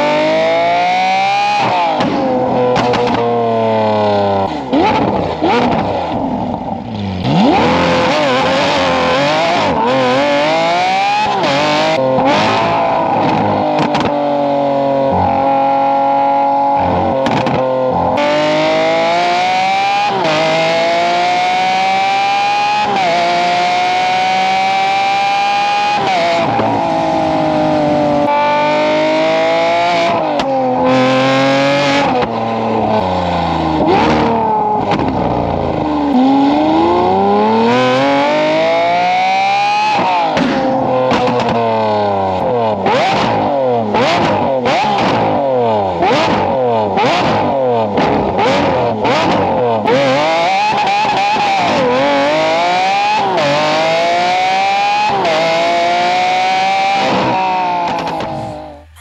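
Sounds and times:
sports car engine revving: 0.0 - 59.0.

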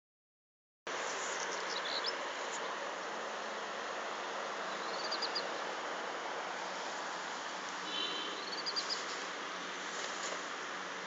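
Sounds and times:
outdoor field hiss: 0.9 - 11.0
small birds chirping: 1.0 - 3.8, 4.4 - 6.1, 7.7 - 10.8.

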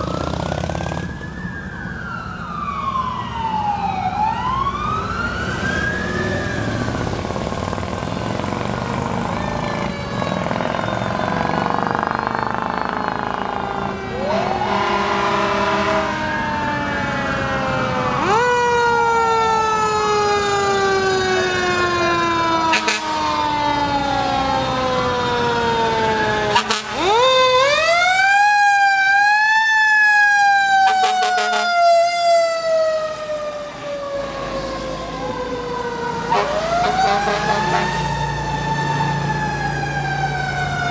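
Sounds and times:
fire engine sirens wailing: 0.0 - 40.9
siren sweeping sharply up: 8.3 - 40.9.

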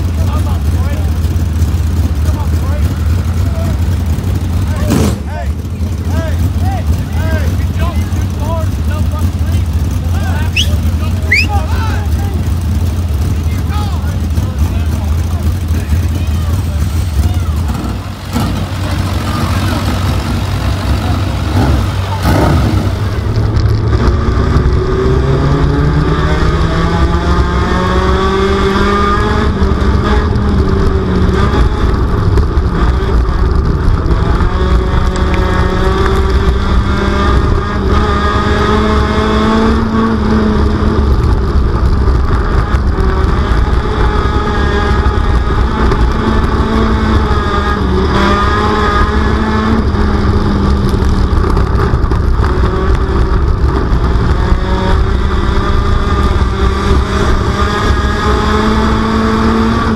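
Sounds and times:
race car engine revving: 0.0 - 59.9
low rumble: 12.1 - 28.7.

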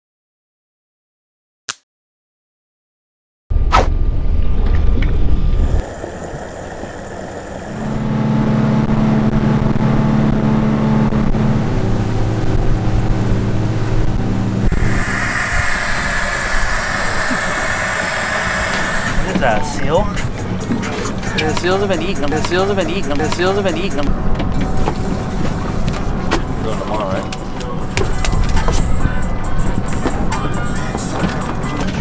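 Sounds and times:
wind buffeting: 4.2 - 21.4
rushing water: 5.6 - 8.2, 14.7 - 19.4
gas hissing into balloon: 5.6 - 8.8, 14.7 - 20.0
outboard motors running: 5.6 - 32.0.

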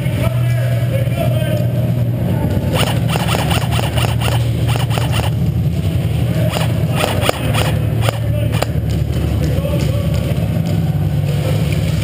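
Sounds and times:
steady low hum: 0.3 - 12.0
airsoft gunfire cracks: 2.8 - 5.4, 6.5 - 8.7.

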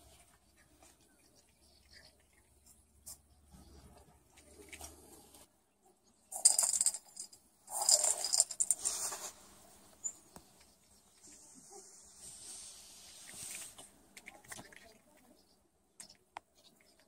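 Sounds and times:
kibble rattling in rolling ball: 6.3 - 9.0.

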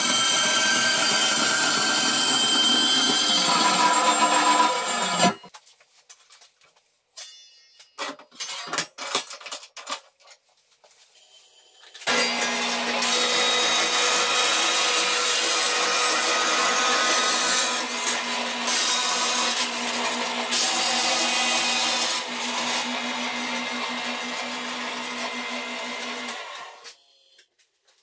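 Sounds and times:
bandsaw blade cutting metal: 0.0 - 5.5.

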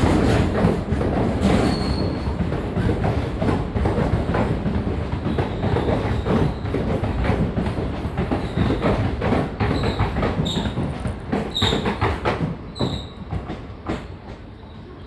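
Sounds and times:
train wheels clattering over rail joints: 0.0 - 14.6
low train rumble: 0.0 - 15.0
high wheel squeals: 1.6 - 2.3, 12.7 - 13.3.

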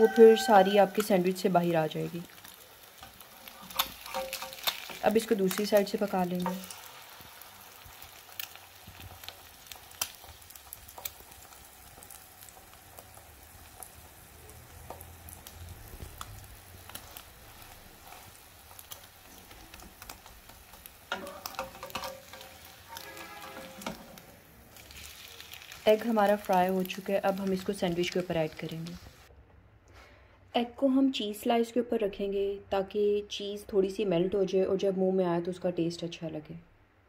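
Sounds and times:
egg sizzling in a pan: 0.0 - 29.3
small crackling pops: 2.3 - 14.0, 14.6 - 23.1.

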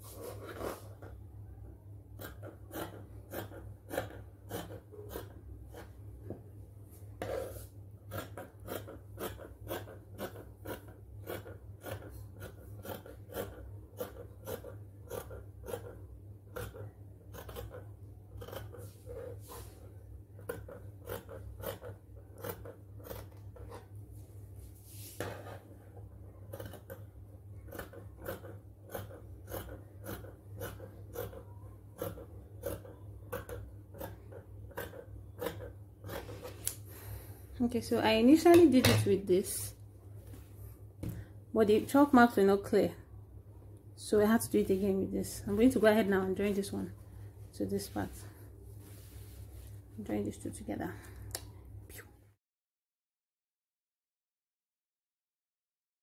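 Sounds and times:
low steady hum: 0.0 - 52.4
scissors snipping fabric: 8.1 - 18.8, 20.4 - 23.6, 26.5 - 27.0, 27.7 - 36.8.

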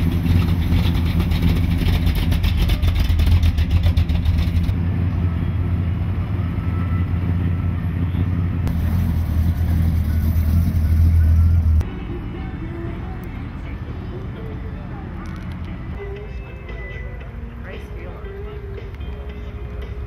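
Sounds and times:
car engine idling: 0.0 - 11.9.

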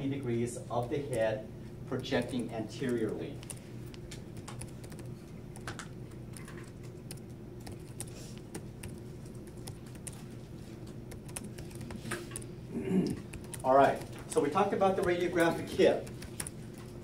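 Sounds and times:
steady low hum: 0.0 - 17.0
typing on computer keyboard: 2.0 - 10.3, 11.1 - 12.5, 13.2 - 17.0.

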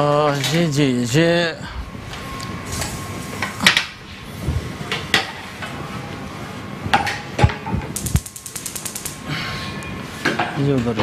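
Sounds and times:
light rattling ticks: 8.0 - 9.2.

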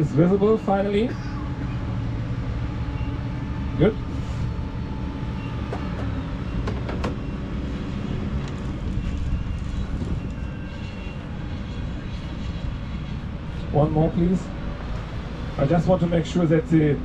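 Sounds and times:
low engine rumble: 0.0 - 17.0.

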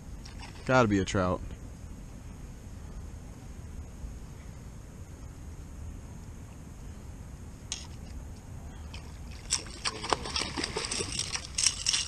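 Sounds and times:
low steady rumble: 0.0 - 12.0
gear rattling and clicking: 10.4 - 12.0.

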